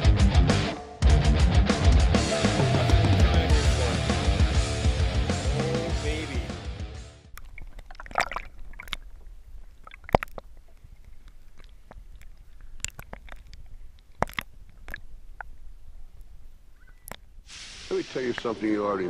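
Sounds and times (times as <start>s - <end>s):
small splashes and knocks: 7.3s - 15.5s
water sloshing and lapping: 7.3s - 17.4s.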